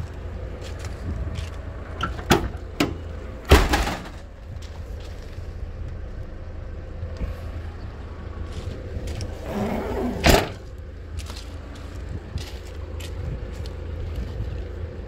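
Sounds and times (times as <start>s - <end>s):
steady low rumble: 0.0s - 15.0s
tailgate rattle: 1.7s - 4.8s, 9.1s - 10.7s
tailgate slamming shut: 2.0s - 4.3s, 9.5s - 10.7s.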